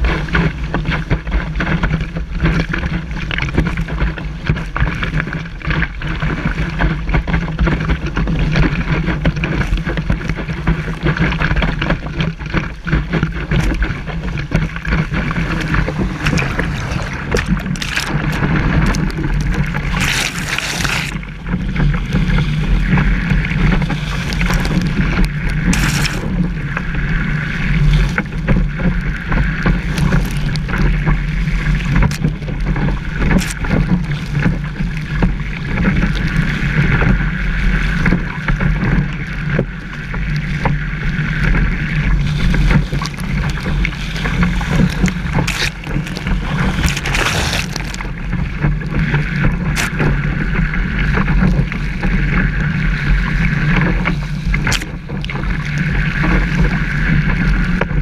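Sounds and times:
low rumble: 0.0s - 58.0s
rush of water: 0.0s - 58.0s
wind buffeting microphone: 6.4s - 58.0s
spray splashing: 15.7s - 21.2s, 25.7s - 26.3s.

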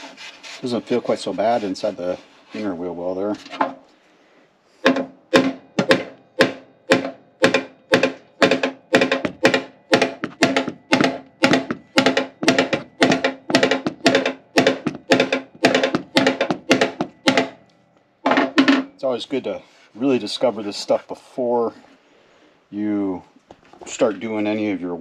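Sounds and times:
hammer striking steel panel: 4.8s - 17.6s.

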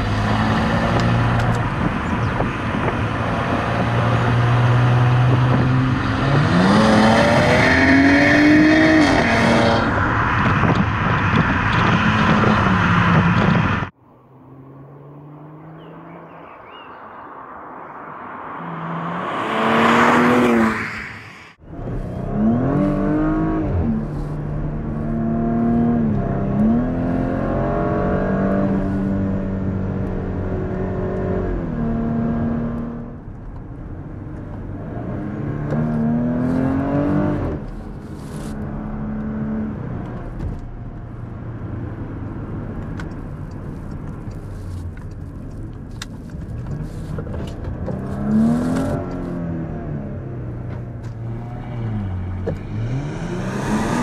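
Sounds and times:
car engine accelerating through upshifts: 0.0s - 16.8s, 18.5s - 20.8s, 21.7s - 33.2s, 34.4s - 43.2s, 46.4s - 54.0s
car driving past: 14.2s - 21.6s.

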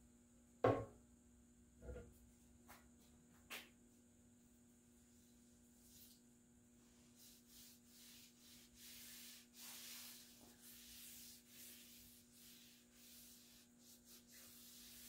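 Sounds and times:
cloth rag rubbing on wood: 6.8s - 15.0s.

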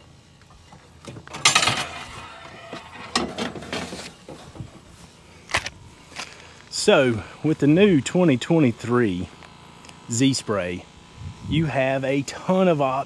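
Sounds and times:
sprayer clattering rattle: 1.2s - 5.0s.

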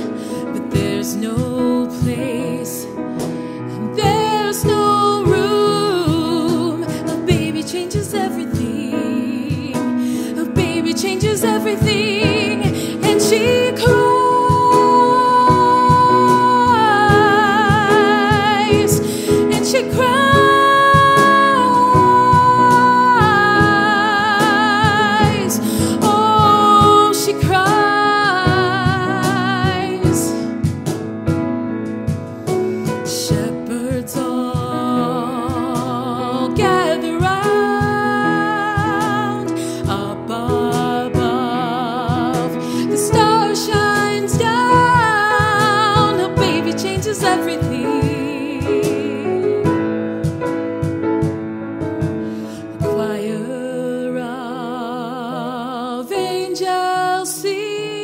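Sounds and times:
woman singing a slow ballad: 0.0s - 30.8s, 32.5s - 50.4s, 52.2s - 58.0s
piano: 0.0s - 58.0s
soft percussion beats: 10.6s - 41.3s, 42.1s - 53.0s.

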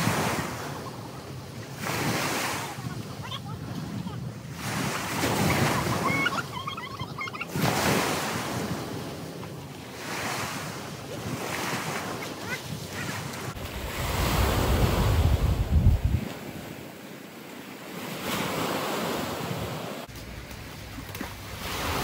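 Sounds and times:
small waves breaking on sand: 0.0s - 22.0s
wind buffeting microphone: 10.9s - 16.8s.

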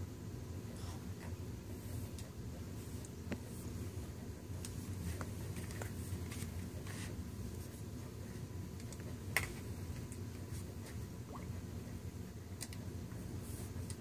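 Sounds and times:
low room hum: 0.0s - 14.0s
faint ticks and scrapes: 1.2s - 11.1s.

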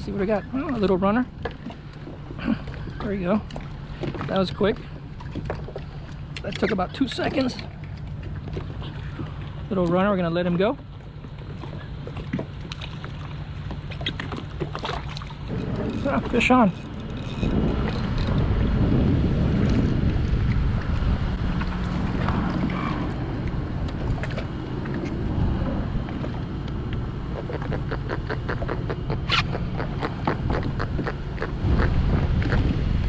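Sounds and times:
strong wind buffeting microphone: 15.5s - 33.0s.

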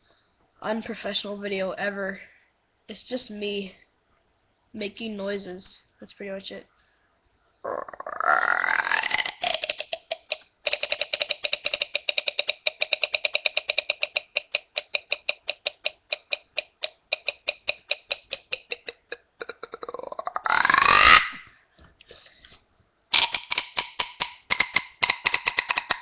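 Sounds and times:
boy making mouth noise: 7.6s - 21.5s, 23.1s - 26.0s.

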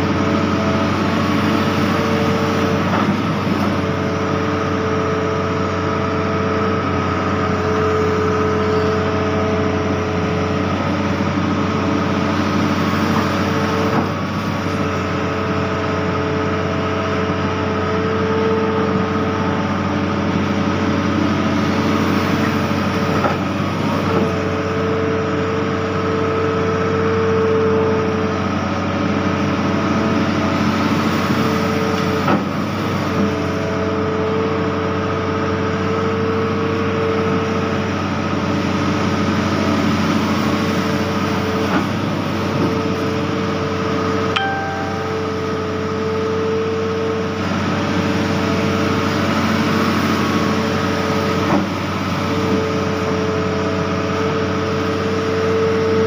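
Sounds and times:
hydraulic whine: 0.0s - 25.0s
excavator engine running: 0.0s - 56.0s.

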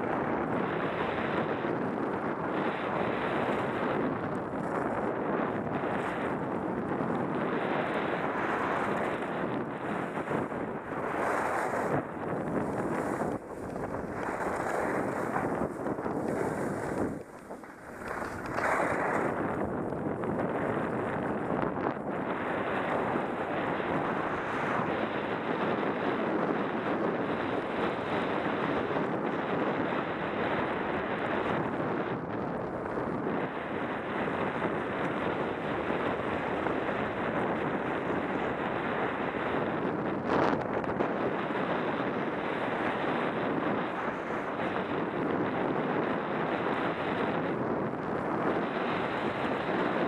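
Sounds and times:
skis sliding on snow: 0.0s - 50.0s
wind rushing over microphone: 0.0s - 50.0s
skis hissing over snow: 7.6s - 19.8s.

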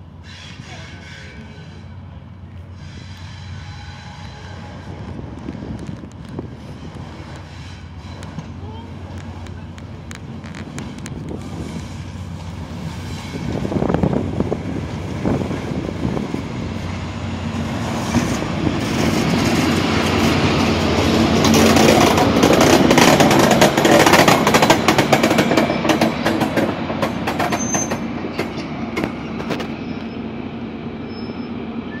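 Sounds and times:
diesel locomotive rolling past: 0.0s - 32.0s
wheels clicking over rail joints: 21.0s - 29.7s.

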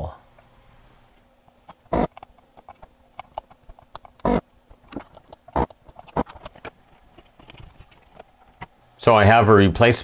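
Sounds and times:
desoldering pump suction bursts: 1.8s - 2.2s, 3.6s - 4.4s, 5.4s - 6.5s.

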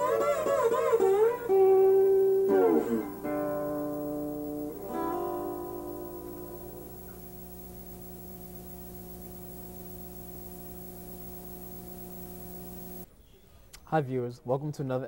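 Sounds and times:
acoustic guitar ringing notes: 0.0s - 6.9s
steady electrical hum: 0.0s - 13.9s
constant hiss: 0.0s - 15.0s.

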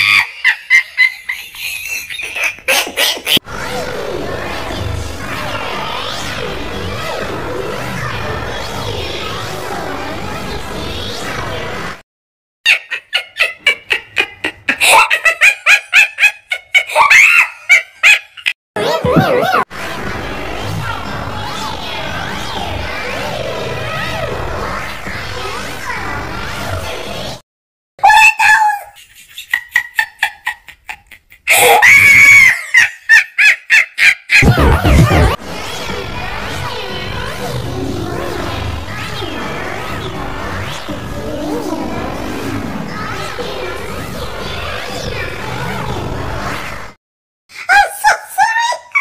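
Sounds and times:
comic chicken clucks: 0.0s - 3.4s, 12.7s - 19.6s, 28.8s - 35.4s
comic chicken squawks: 0.0s - 3.4s, 28.6s - 35.4s
high-pitched cries: 0.0s - 3.4s, 31.5s - 35.4s.

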